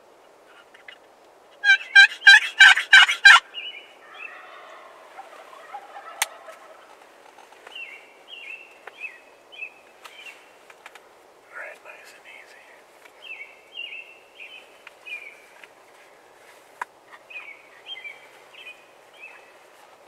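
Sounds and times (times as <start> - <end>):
soft short turkey calls: 1.6 - 3.4, 4.0 - 7.0
turkey gobbling: 1.6 - 7.1.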